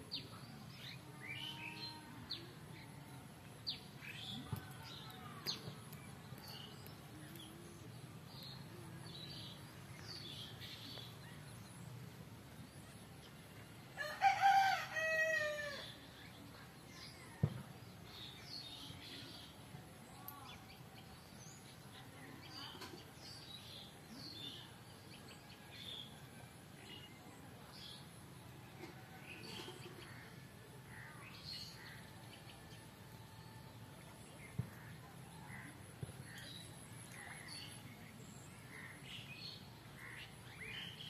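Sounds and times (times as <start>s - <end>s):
small birds chirping: 0.0s - 14.0s, 15.7s - 41.0s
rooster crowing: 14.0s - 15.8s.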